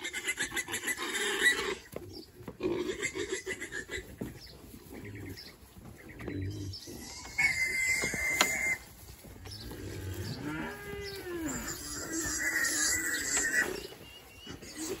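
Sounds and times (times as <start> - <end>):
piglets squealing: 0.0 - 1.9, 6.8 - 8.8, 10.4 - 15.0
pig grunts: 11.4 - 15.0.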